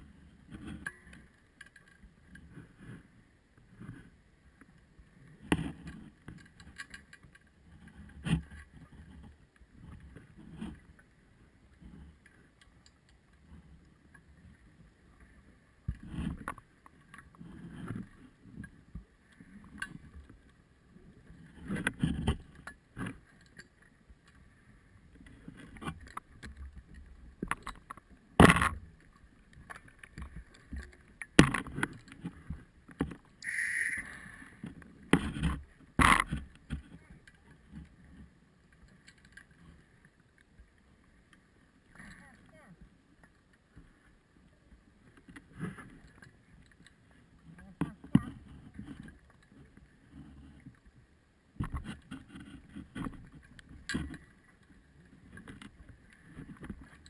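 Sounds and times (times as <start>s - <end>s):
faint high whine: 33.4s - 34.6s.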